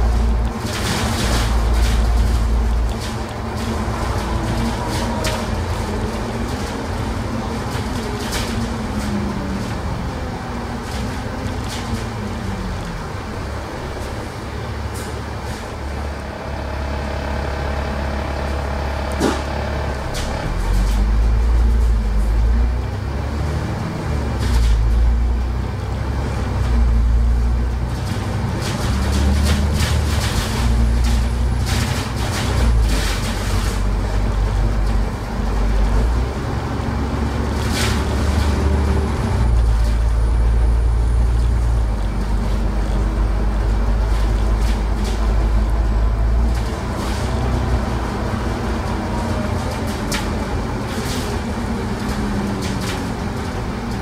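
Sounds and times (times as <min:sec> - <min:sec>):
bus engine drone: 0:00.0 - 0:54.0.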